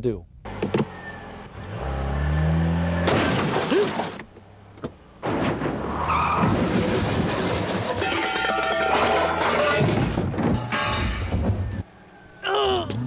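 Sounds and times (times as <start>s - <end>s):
car engine revving: 0.4s - 3.2s
car crashing into shelving: 3.0s - 4.3s, 5.2s - 11.8s.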